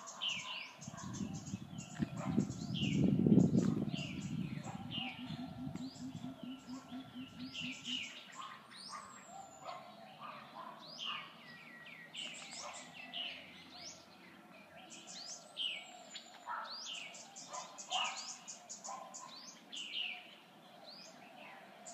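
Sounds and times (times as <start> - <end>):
birds chirping and singing: 0.0 - 21.9
low pulsing hum: 2.5 - 8.0.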